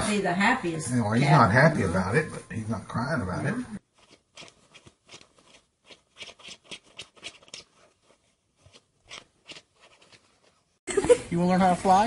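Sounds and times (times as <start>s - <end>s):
cat scratching on fabric: 3.8s - 10.8s.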